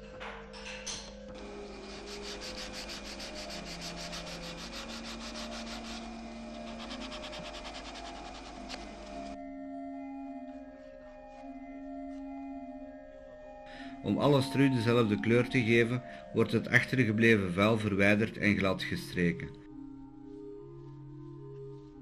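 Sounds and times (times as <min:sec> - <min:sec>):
sandpaper rubbing wood: 0:01.4 - 0:09.4.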